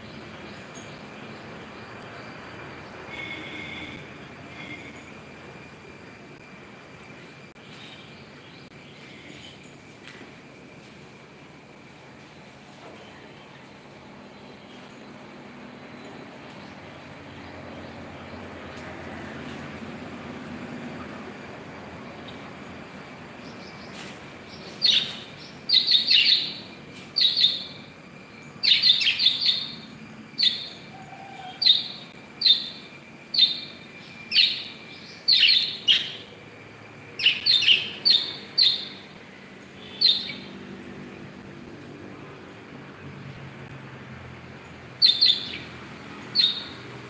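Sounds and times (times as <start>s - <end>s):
bird chirping: 23.4s - 36.4s, 37.2s - 40.6s, 45.0s - 46.9s.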